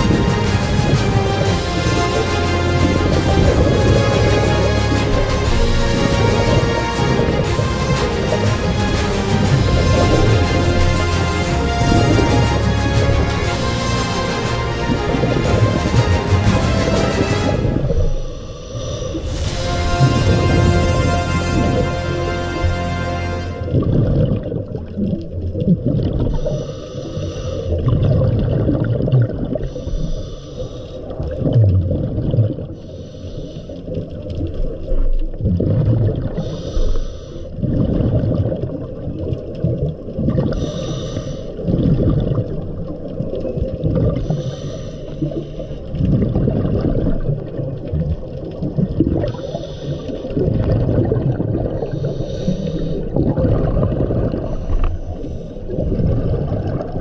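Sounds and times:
rush of exhaled bubbles: 0.0s - 33.0s, 33.7s - 57.0s
low underwater rumble: 0.0s - 57.0s
diver breathing through a regulator: 15.9s - 21.0s, 26.2s - 28.2s, 29.6s - 31.4s, 32.7s - 34.1s, 36.3s - 38.2s, 40.4s - 42.6s, 44.0s - 46.8s, 49.1s - 56.8s.

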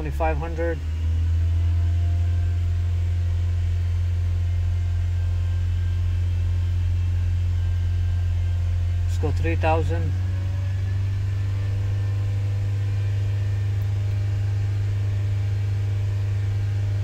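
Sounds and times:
car engine humming steadily: 0.0s - 17.0s.

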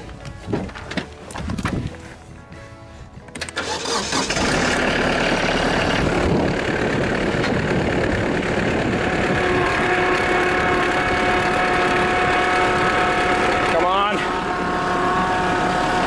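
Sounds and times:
engine cranking and idling: 3.2s - 16.0s.

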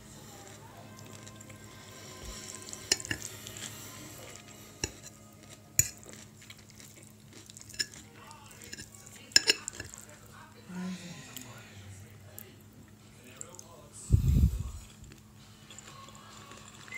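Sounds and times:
low steady hum: 0.0s - 16.9s
fork clinking on a plate: 2.8s - 3.3s, 4.8s - 5.2s, 5.8s - 6.2s, 7.6s - 8.0s, 8.6s - 10.0s.

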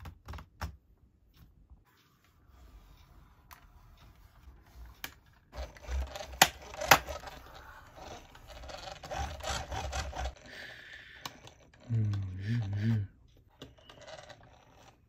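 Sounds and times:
toy car wheels rolling on desk: 2.5s - 10.5s, 11.2s - 15.0s.

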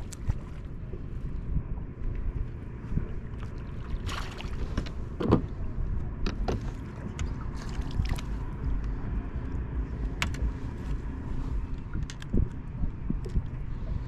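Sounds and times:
water lapping against boat hull: 0.0s - 14.0s
wind buffeting microphone: 0.0s - 14.0s
short splashes: 3.4s - 4.8s.

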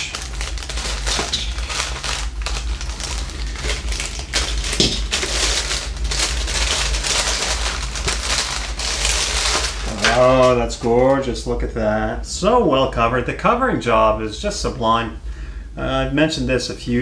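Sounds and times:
plastic bag crinkling and rustling: 0.0s - 11.3s.

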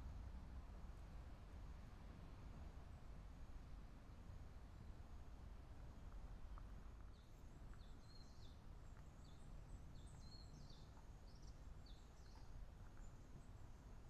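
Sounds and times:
small bird chirping: 7.1s - 13.6s.

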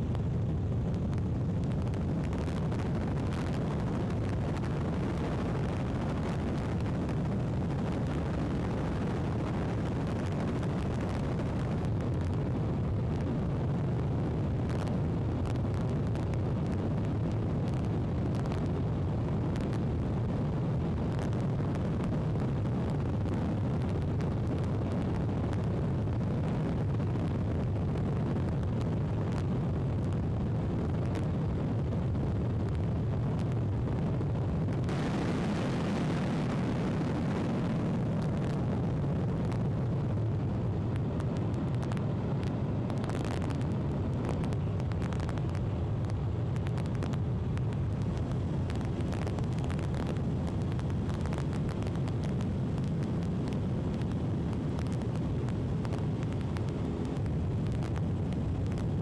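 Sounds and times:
aircraft cabin drone: 34.8s - 59.0s.

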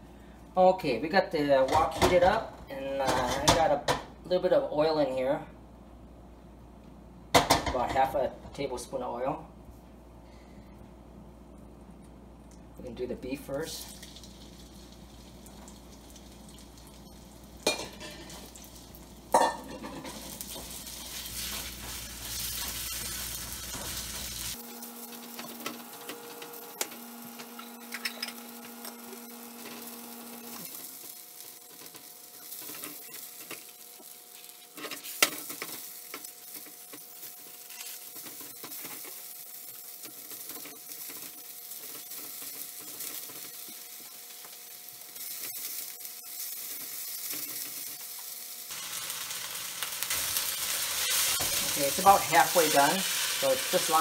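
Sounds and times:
meat sizzling in a wok: 13.7s - 54.0s.

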